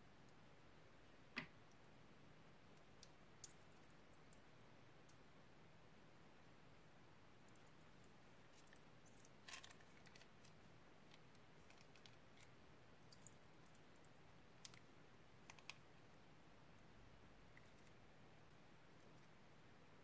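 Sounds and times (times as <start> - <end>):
plastic piping bag crinkling: 8.5 - 12.5.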